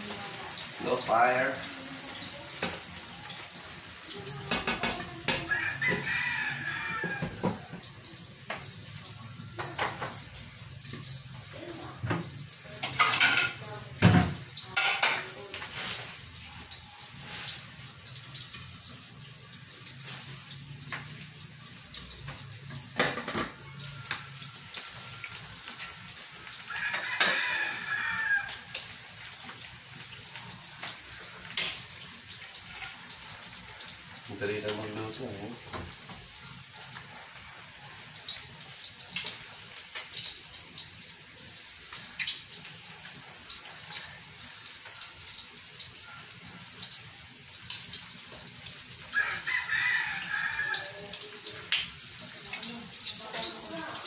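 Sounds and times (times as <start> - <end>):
frying sizzle: 0.0 - 54.0
rooster crowing: 5.3 - 7.7, 26.6 - 28.8, 49.1 - 51.3.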